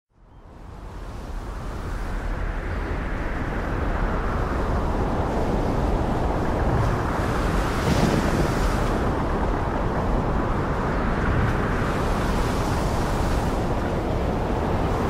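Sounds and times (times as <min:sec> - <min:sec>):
gale-force wind rushing: 0:00.4 - 0:15.0
heavy waves breaking against ship: 0:00.7 - 0:15.0.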